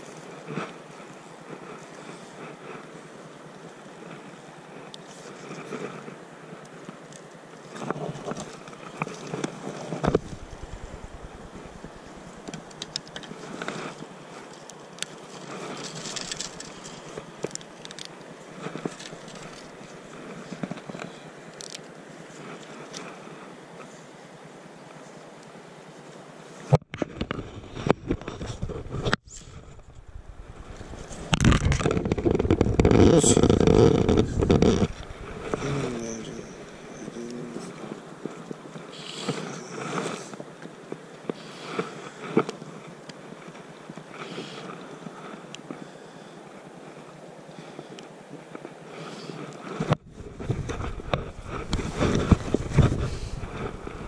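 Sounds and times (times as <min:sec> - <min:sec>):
wind: 0:00.0 - 0:54.0
wind rumbling on microphone: 0:07.8 - 0:14.2, 0:26.9 - 0:40.6, 0:49.3 - 0:54.0
fishing rod and reel clicks: 0:14.5 - 0:19.7.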